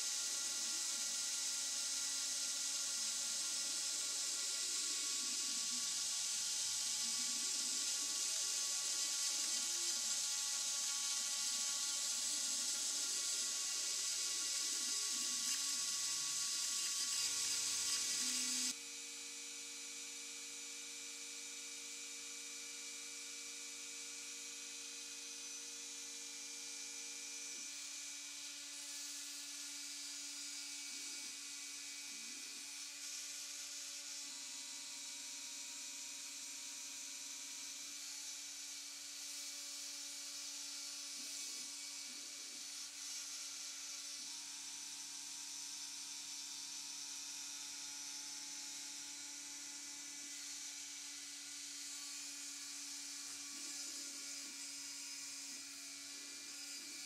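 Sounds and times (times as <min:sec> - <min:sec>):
rotary tool spinning: 0:00.0 - 0:18.8.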